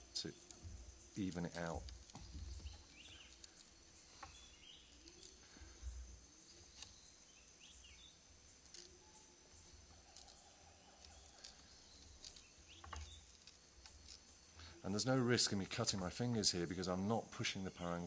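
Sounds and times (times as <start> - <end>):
rattan cane splitting crackles: 0.0 - 5.8, 6.6 - 14.6
faint bird chirps: 0.0 - 18.0
high insect drone: 0.0 - 18.0.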